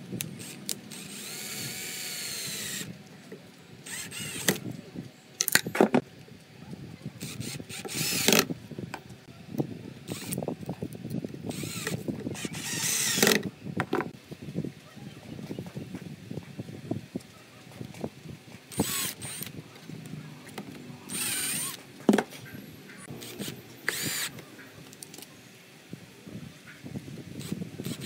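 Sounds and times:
drill driving screws: 0:00.4 - 0:03.0, 0:03.8 - 0:04.6, 0:07.2 - 0:08.5, 0:10.1 - 0:10.4, 0:11.5 - 0:13.5, 0:18.7 - 0:19.5, 0:21.0 - 0:21.8, 0:23.2 - 0:24.4, 0:27.4 - 0:28.0.

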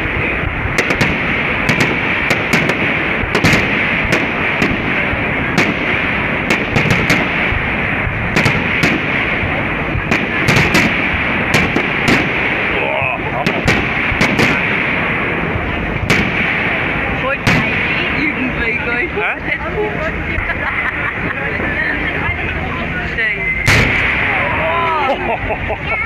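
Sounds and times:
firework shells bursting: 0:00.0 - 0:18.4, 0:23.7 - 0:24.5
continuous din: 0:00.0 - 0:26.0.

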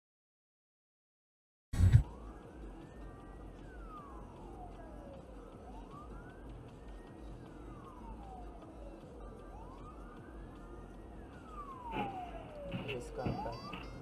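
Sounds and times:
siren wailing: 0:01.8 - 0:14.0
traffic rumble: 0:01.8 - 0:14.0.

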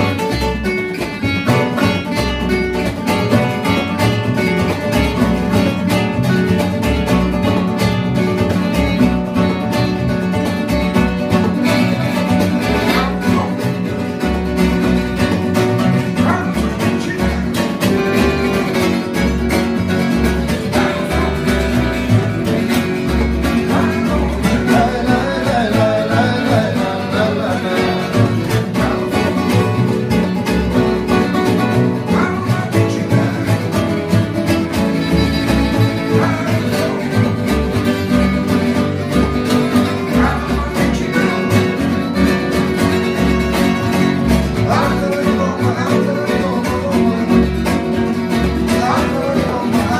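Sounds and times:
accordion: 0:00.0 - 0:45.0
acoustic guitars strumming: 0:00.0 - 0:49.9
double bass: 0:00.0 - 0:49.9
man singing: 0:11.6 - 0:14.1, 0:15.8 - 0:42.3, 0:43.2 - 0:49.9.

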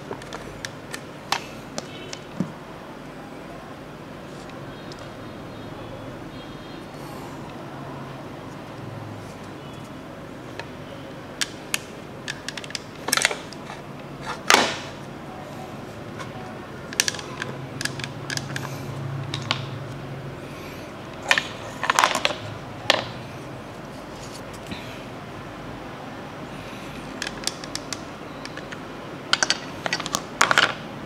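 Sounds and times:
plastic toy pieces clicking: 0:11.4 - 0:13.6, 0:16.9 - 0:18.7, 0:27.1 - 0:28.8, 0:29.4 - 0:30.8.

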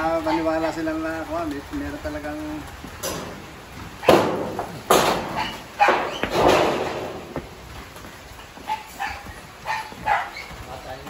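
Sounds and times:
dog barking: 0:00.2 - 0:00.6, 0:04.0 - 0:04.3, 0:05.3 - 0:06.2, 0:08.6 - 0:10.5.

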